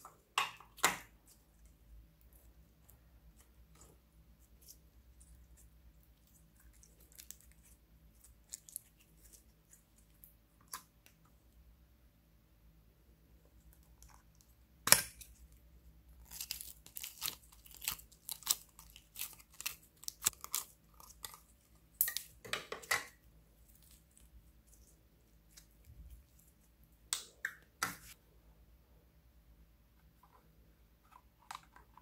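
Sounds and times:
slime crackling and popping: 0:16.2 - 0:22.4.

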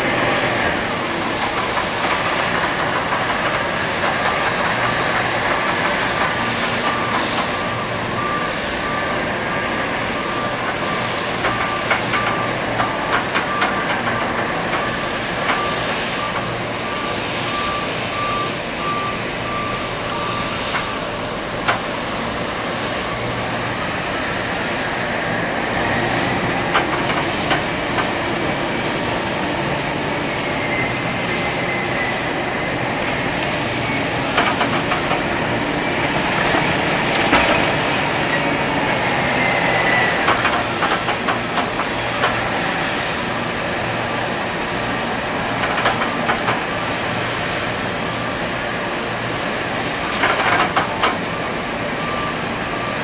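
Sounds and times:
heavy machinery running: 0:00.0 - 0:53.0
faint high squeal: 0:10.2 - 0:12.5.

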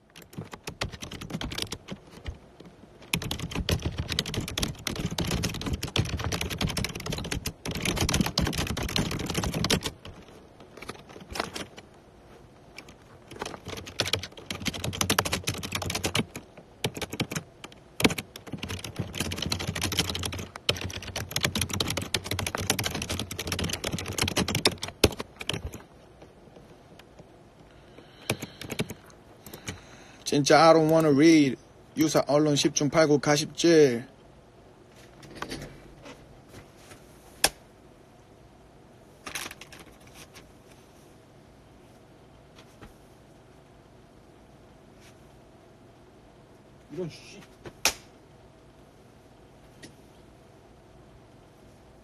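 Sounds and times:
fast typing on keyboard: 0:00.0 - 0:02.4, 0:03.0 - 0:11.8, 0:12.8 - 0:25.9, 0:28.0 - 0:29.8.

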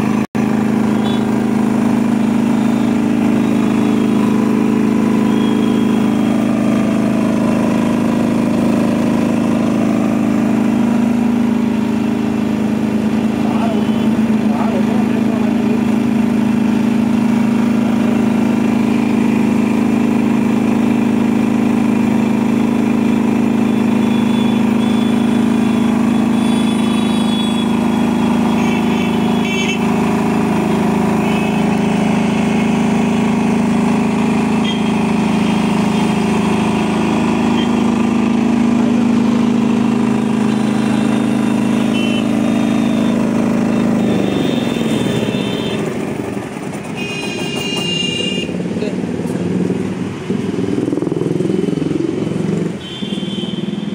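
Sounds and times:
diesel generator humming: 0:00.0 - 0:53.9.

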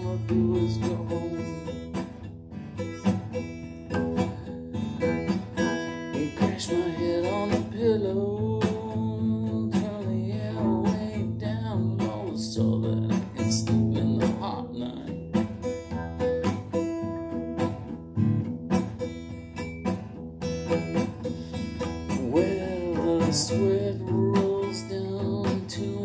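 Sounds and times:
person singing: 0:00.0 - 0:02.2, 0:05.0 - 0:16.3, 0:21.3 - 0:26.0
acoustic guitar strumming: 0:00.0 - 0:26.0.

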